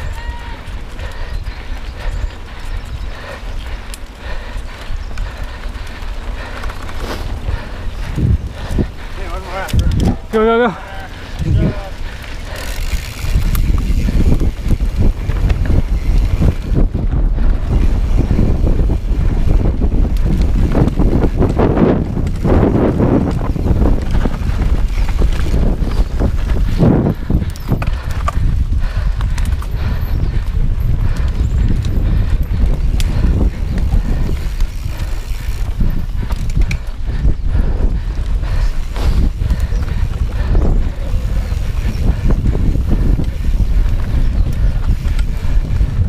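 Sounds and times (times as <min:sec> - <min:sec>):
bike rattling clicks and knocks: 0:00.0 - 0:46.0
wind on camera microphone: 0:00.0 - 0:46.0.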